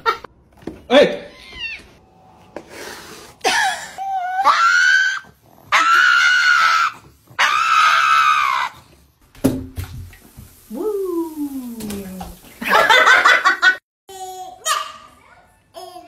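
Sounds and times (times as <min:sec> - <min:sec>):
dog screaming: 0:04.0 - 0:08.9, 0:14.6 - 0:15.3.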